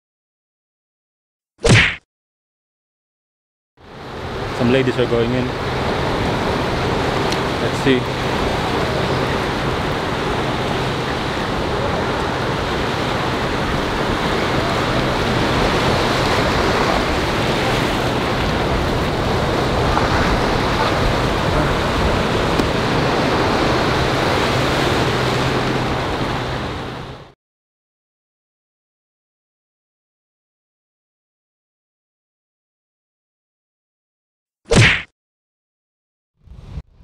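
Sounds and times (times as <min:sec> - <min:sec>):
surf washing over rocks: 0:04.0 - 0:27.3.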